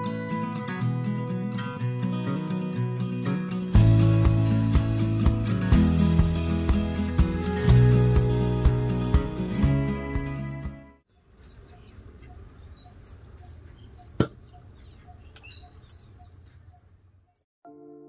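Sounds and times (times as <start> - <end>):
background music: 0.0 - 11.0
small birds chirping: 11.1 - 17.4.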